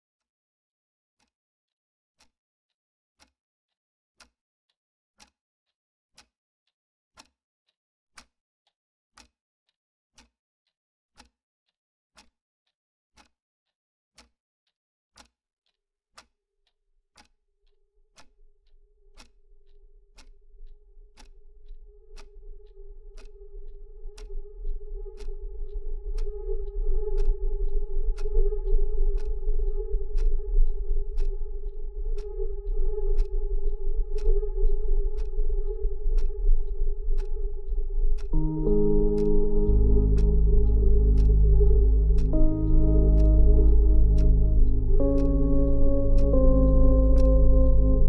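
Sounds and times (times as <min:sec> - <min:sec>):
faint clock ticking: 0:19.2 - 0:19.4, 0:20.2 - 0:33.5, 0:34.2 - 0:35.4, 0:36.1 - 0:48.0
low drone and rumble: 0:20.6 - 0:48.0.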